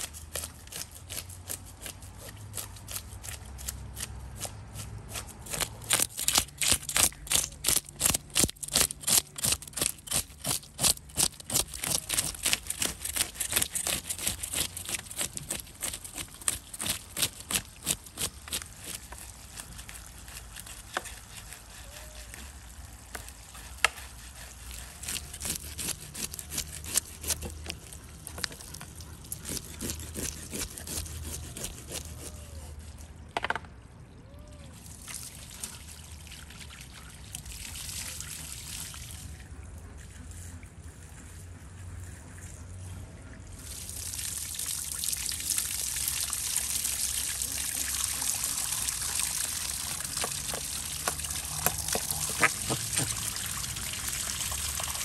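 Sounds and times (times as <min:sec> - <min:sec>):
knife scraping fish scales: 0:00.0 - 0:33.1, 0:49.8 - 0:53.8
water pouring from a hose: 0:05.2 - 0:33.0, 0:34.6 - 0:39.4, 0:43.5 - 0:55.0.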